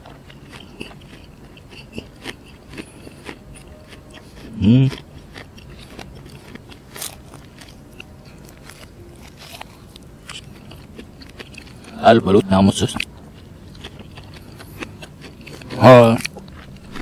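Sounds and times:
person chewing food: 0.0s - 12.0s, 12.9s - 17.0s.

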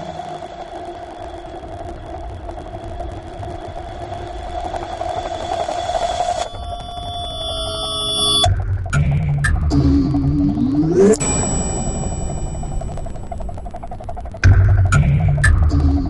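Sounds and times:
noisy electronic drone: 0.0s - 16.0s
stacked synthesizer tones: 6.4s - 16.0s.

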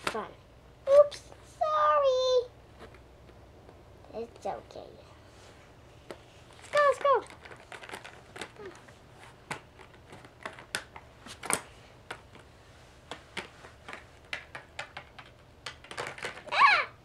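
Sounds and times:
plastic toys tapping: 6.0s - 12.5s, 13.1s - 16.6s.

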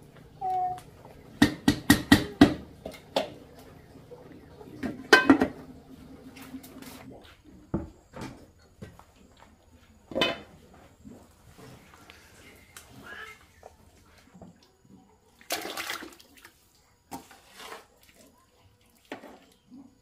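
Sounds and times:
metal pot and lid clanking: 5.1s - 5.6s
wooden paddle scraping a pot: 17.1s - 18.0s.

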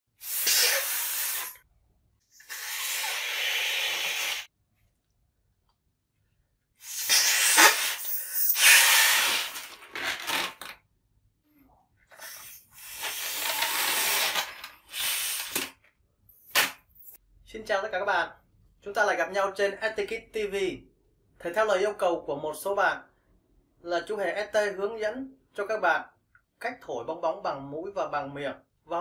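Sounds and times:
person blowing into balloons: 0.1s - 1.6s, 2.3s - 4.5s, 6.8s - 10.6s, 12.1s - 15.7s.

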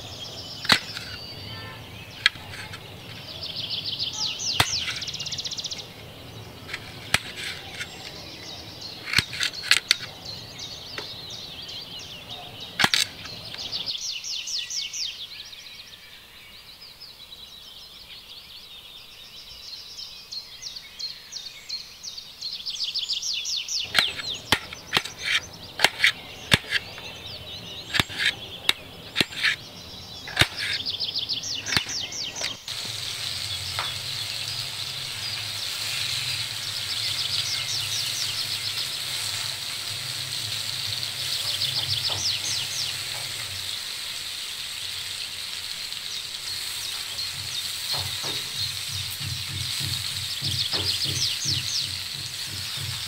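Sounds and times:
birds chirping: 0.0s - 53.0s
cleaver chopping on wooden board: 4.5s - 5.2s, 23.9s - 29.6s, 30.3s - 30.9s, 47.3s - 53.0s.

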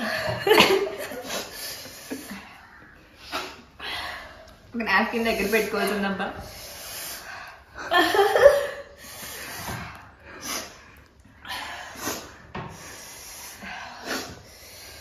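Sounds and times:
hissing heavy breaths: 5.2s - 7.8s, 8.8s - 15.0s.

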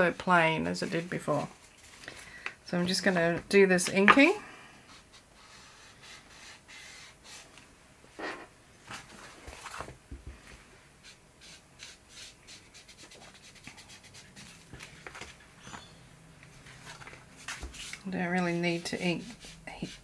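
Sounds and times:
scratchy rubbing on paper: 11.0s - 14.7s, 17.4s - 20.0s.

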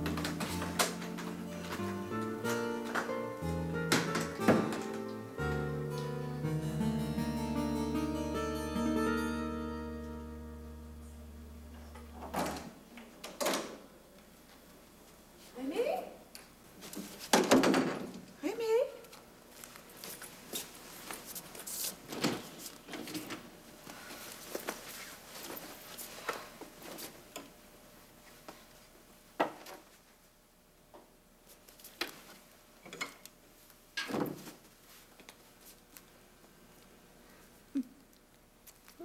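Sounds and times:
closet door clicks and knocks: 3.9s - 5.0s, 17.3s - 18.2s.

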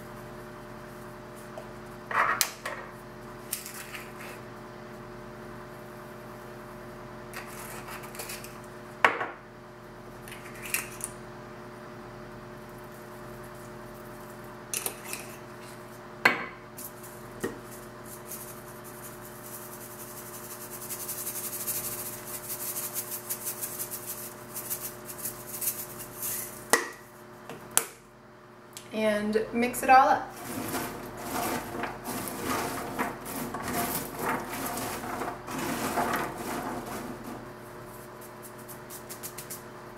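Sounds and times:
seasoning rattling in shaker: 16.8s - 26.7s, 30.3s - 39.6s.

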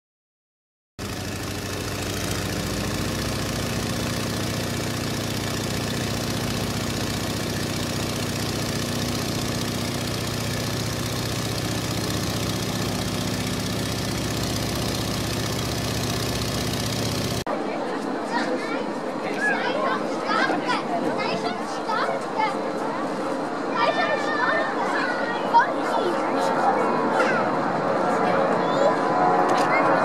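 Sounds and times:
propeller aircraft engine drone: 1.0s - 17.5s, 25.7s - 30.0s.

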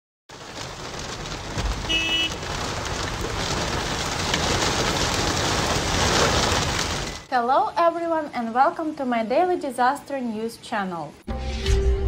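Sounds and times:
heavy rain pouring: 0.3s - 8.3s.

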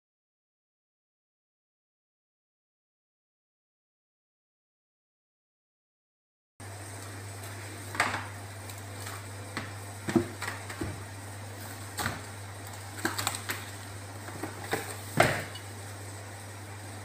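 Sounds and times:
steady low hum: 6.6s - 17.0s.

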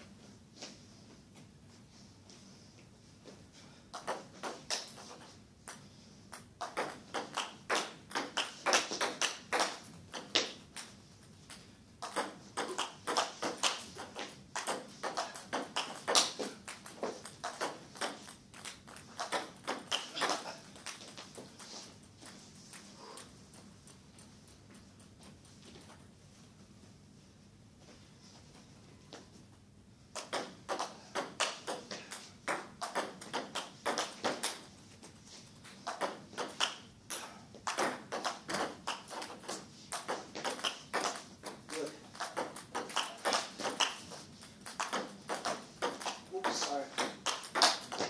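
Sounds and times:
table tennis ball clicking: 37.6s - 46.3s, 47.0s - 48.0s.

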